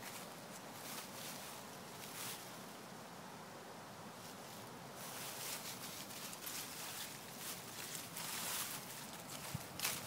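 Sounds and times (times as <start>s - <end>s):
dog rustling dry leaves: 4.4s - 10.0s.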